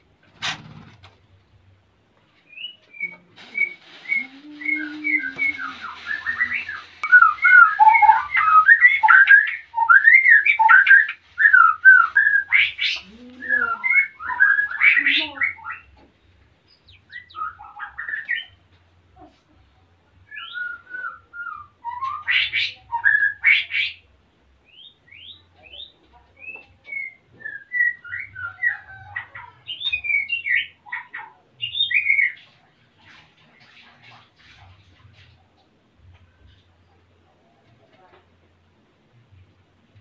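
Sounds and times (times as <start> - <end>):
bird singing whistles: 2.5 - 12.5, 13.5 - 15.9, 20.3 - 23.6, 24.7 - 28.8.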